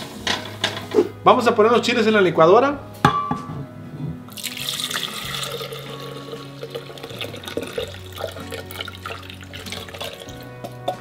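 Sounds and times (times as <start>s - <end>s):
liquid pouring into blender jar: 4.3s - 10.9s.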